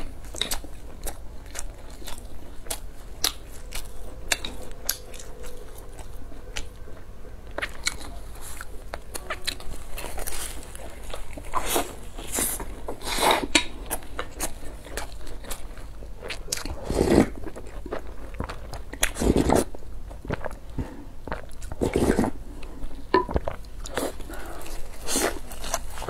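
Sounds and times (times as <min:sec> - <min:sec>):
slurps of soup: 0:16.8 - 0:17.4, 0:21.8 - 0:22.4
crisp bites and chewing: 0:23.4 - 0:26.0.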